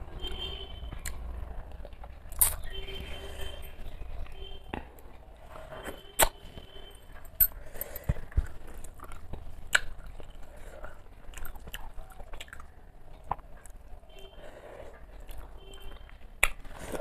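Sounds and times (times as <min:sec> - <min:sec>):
person chewing wetly: 0:00.3 - 0:03.2, 0:07.3 - 0:17.0
sharp mouth clicks and smacks: 0:00.9 - 0:02.7, 0:06.2 - 0:06.4, 0:07.4 - 0:13.8, 0:15.2 - 0:17.0.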